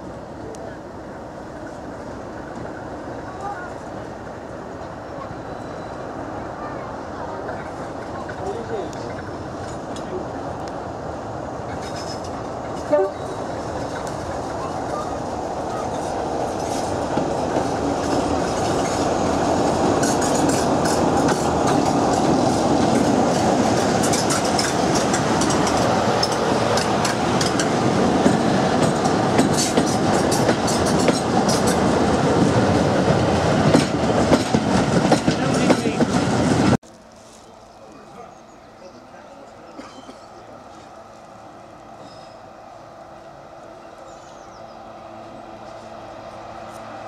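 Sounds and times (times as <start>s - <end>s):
diesel locomotive engine running: 0.3s - 47.0s
train wheels clattering over rail joints: 11.6s - 15.1s, 15.7s - 36.7s.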